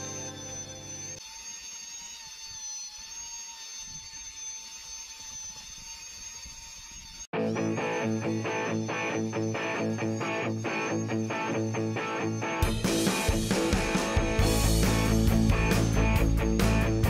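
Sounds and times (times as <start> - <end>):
guitar music: 0.0 - 1.1, 7.3 - 17.0
music: 0.0 - 1.2, 7.4 - 17.0
vacuum cleaner whine: 0.0 - 17.0.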